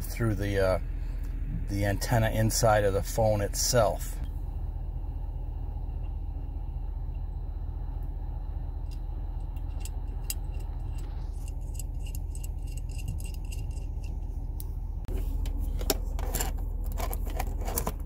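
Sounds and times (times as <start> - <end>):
steady low rumble: 0.0 - 18.0
metallic connector clicks and scrapes: 8.9 - 14.7, 15.4 - 18.0.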